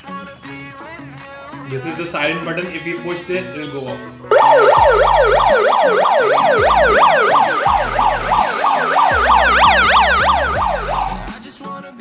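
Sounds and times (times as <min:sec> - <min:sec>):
megaphone siren yelping: 0:04.3 - 0:11.4.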